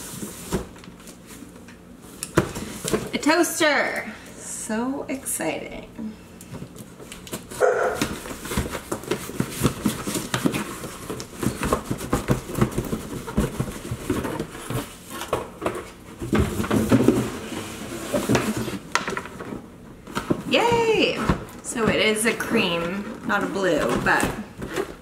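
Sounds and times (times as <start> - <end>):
cardboard flaps rustling: 6.5 - 25.0
box scraping against cardboard: 16.6 - 18.9.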